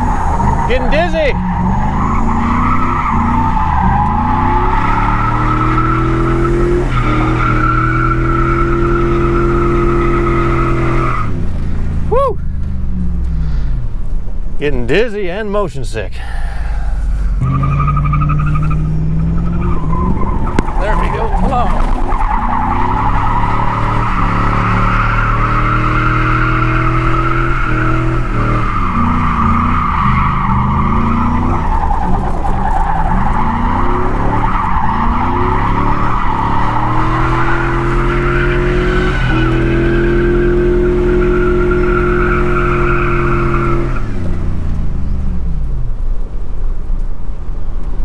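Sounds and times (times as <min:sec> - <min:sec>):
tyres squealing: 0:00.0 - 0:11.2, 0:17.4 - 0:40.1
truck engine revving: 0:00.0 - 0:13.8, 0:17.3 - 0:44.3.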